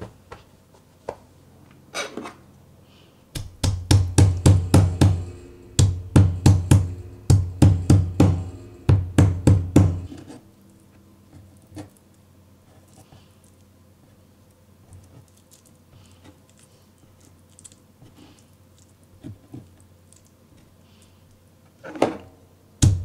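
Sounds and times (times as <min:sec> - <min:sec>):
mallet thudding on pulp: 0:03.4 - 0:05.2, 0:05.8 - 0:10.1.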